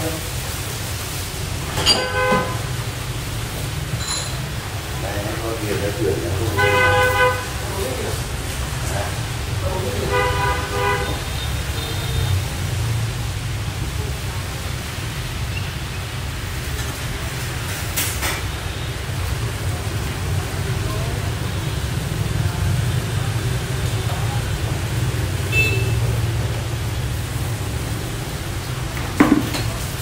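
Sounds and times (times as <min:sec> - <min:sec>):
ladle clinking in pot: 0:01.8 - 0:02.2.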